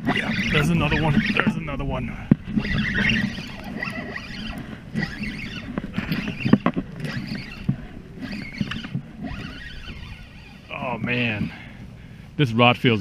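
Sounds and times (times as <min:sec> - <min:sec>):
knocks and clicks: 0:00.0 - 0:09.5
wind rumbling on microphone: 0:00.0 - 0:13.0.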